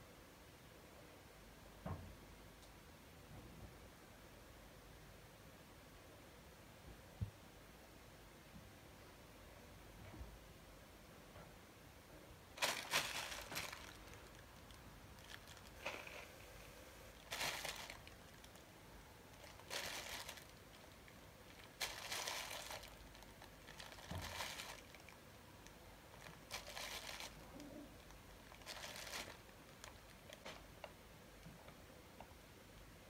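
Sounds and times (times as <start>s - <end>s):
baking paper rustling: 12.6s - 16.4s, 17.1s - 18.7s, 19.4s - 25.2s, 26.2s - 30.5s.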